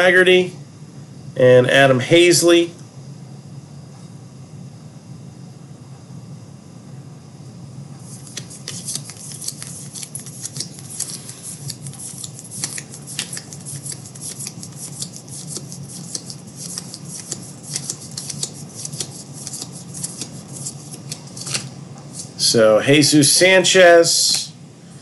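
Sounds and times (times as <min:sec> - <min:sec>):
steady low hum: 0:00.0 - 0:25.0
cards clicking and rustling: 0:08.0 - 0:22.4.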